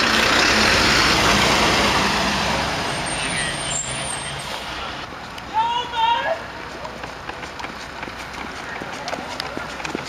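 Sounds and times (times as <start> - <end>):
fire truck diesel engine passing: 0.0 - 5.1.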